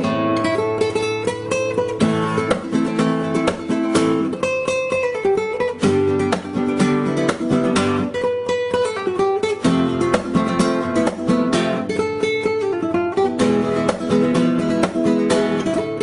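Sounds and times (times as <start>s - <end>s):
strummed acoustic guitar: 0.0s - 16.0s.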